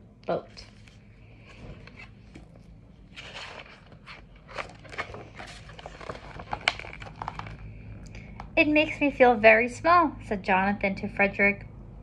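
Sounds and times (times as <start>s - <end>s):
book pages rustling: 0.5s - 8.5s.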